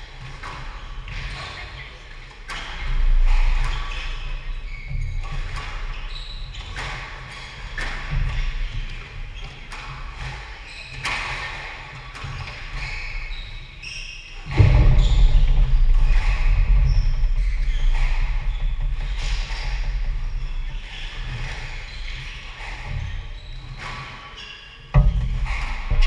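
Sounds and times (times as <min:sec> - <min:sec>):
shoes squeaking on wooden floor: 0:00.8 - 0:26.0
loud low rumble: 0:14.6 - 0:20.7.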